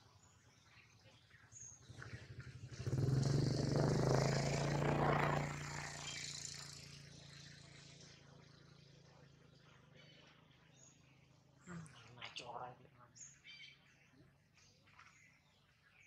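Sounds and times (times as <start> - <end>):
passing vehicle engine hum: 1.8 - 9.7.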